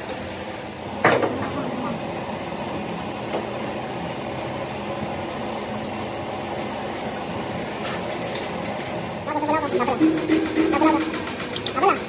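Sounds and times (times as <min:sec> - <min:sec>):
machine humming: 0:08.9 - 0:12.0.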